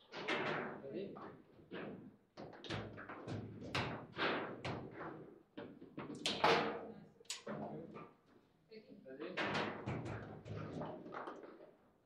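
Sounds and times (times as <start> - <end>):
foosball table knocks and clacks: 9.4 - 11.6.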